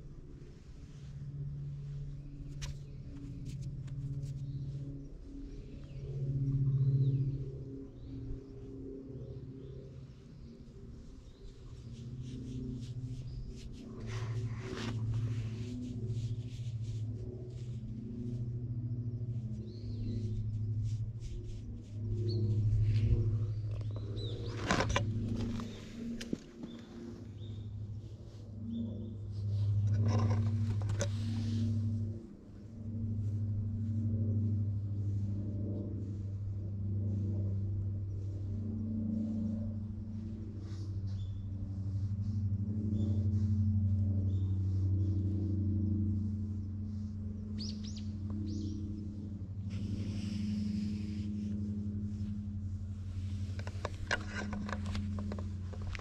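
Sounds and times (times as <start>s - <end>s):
low pulsing hum: 0.0s - 56.0s
hand stroking cat fur: 0.4s - 4.8s, 10.6s - 28.4s, 29.3s - 56.0s.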